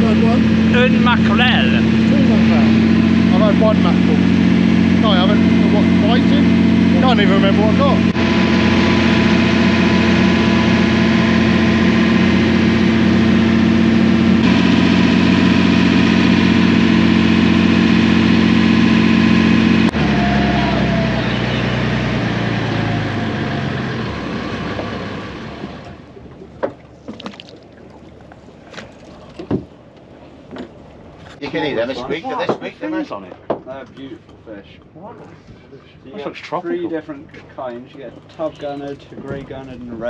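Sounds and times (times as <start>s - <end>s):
boat engine running: 0.0s - 33.4s, 34.3s - 40.0s.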